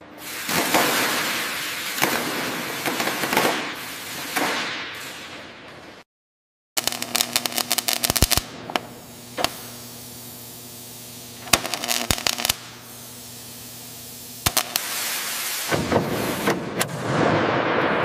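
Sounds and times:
rapid sharp cracks and clicks: 6.8s - 9.6s, 11.5s - 12.6s.

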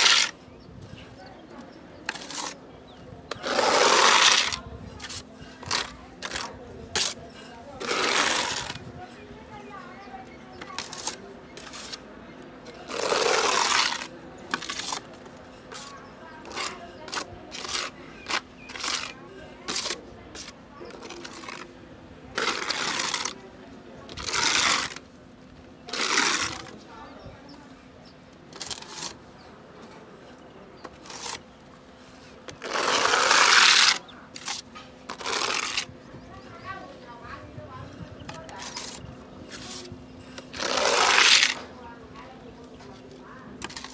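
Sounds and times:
plastering knife scraping compound: 0.0s - 0.4s, 1.6s - 21.7s, 22.3s - 23.4s, 24.1s - 25.1s, 25.9s - 26.8s, 28.5s - 29.4s, 30.8s - 31.4s, 32.0s - 35.9s, 38.2s - 41.8s, 43.5s - 43.9s.

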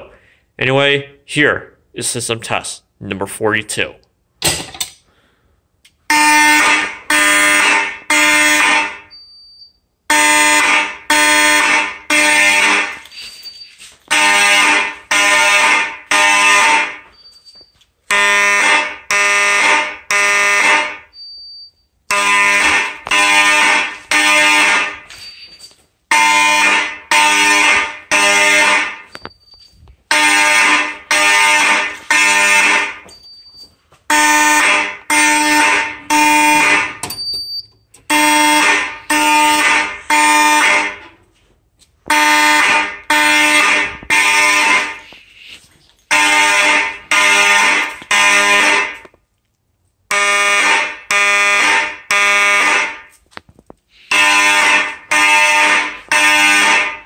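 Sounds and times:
fire alarm horns blasting: 6.0s - 41.2s, 42.0s - 49.1s, 50.1s - 53.2s, 54.0s - 57.0s
short high beep: 9.1s - 9.8s, 13.1s - 13.9s, 25.1s - 25.7s, 37.1s - 37.7s.

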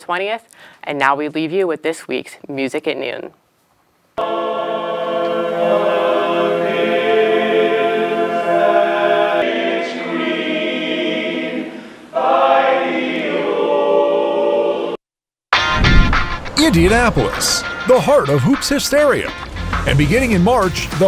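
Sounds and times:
male chorus singing a cappella: 4.2s - 15.0s.

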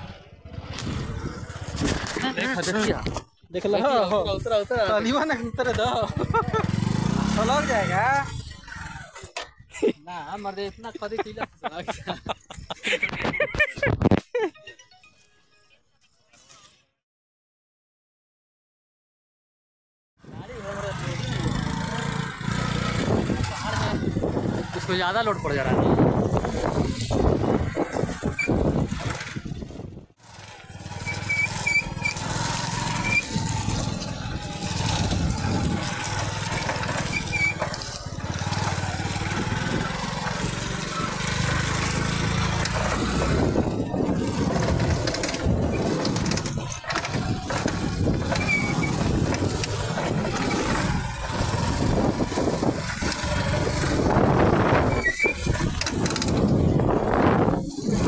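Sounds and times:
wind on microphone: 0.0s - 2.3s, 22.8s - 24.9s, 25.5s - 30.2s, 33.1s - 36.3s, 42.2s - 58.0s
motorcycle engine running: 0.0s - 3.2s, 4.0s - 9.4s, 20.3s - 58.0s.

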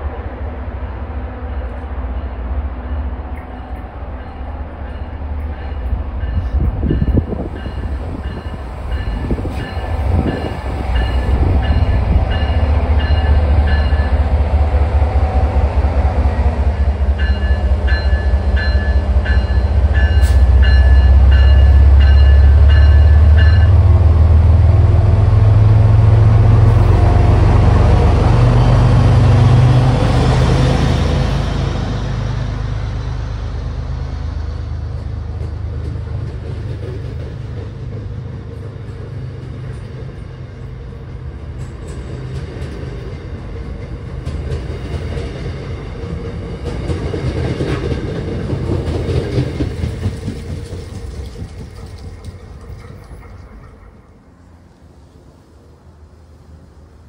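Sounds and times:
diesel locomotive engine rumble: 0.0s - 57.0s
locomotive bell ringing: 2.1s - 14.4s, 16.7s - 24.0s.

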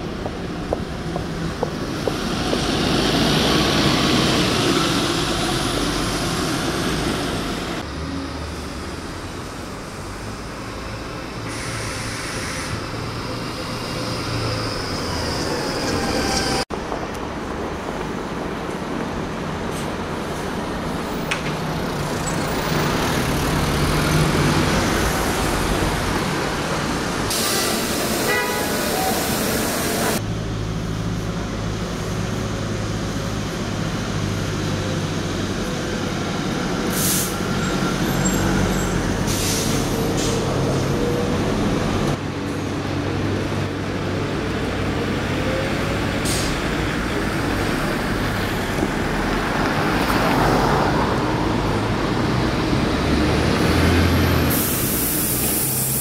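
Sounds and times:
bus engines idling: 0.0s - 56.0s
street traffic: 0.0s - 56.0s
air brake hiss: 11.5s - 12.8s, 27.3s - 30.1s, 36.9s - 37.4s, 39.3s - 40.5s, 46.2s - 46.6s, 54.5s - 56.0s.

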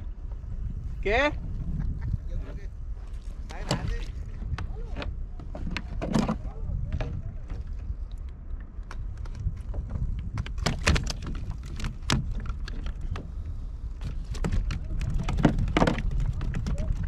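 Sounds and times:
wind rumble on microphone: 0.0s - 17.0s
gear clicks and knocks: 8.8s - 13.3s, 14.0s - 17.0s.

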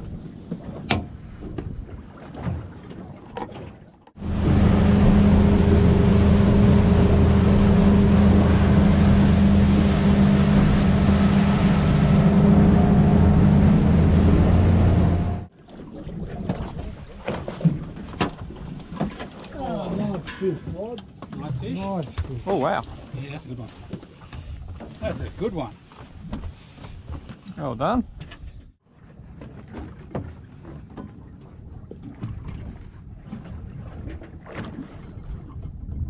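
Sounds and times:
water rushing along hull: 0.0s - 36.0s
outboard motor running: 4.2s - 15.5s
wind on microphone: 31.6s - 36.0s.

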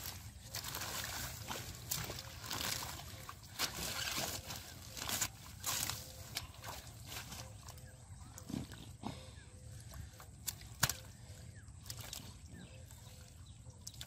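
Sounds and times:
wet squelches and splashes: 0.0s - 14.0s.

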